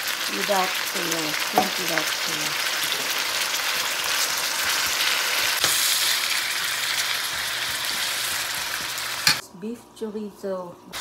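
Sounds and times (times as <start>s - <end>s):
food sizzling in oil: 0.0s - 9.4s
utensil stirring in wok: 2.9s - 9.4s.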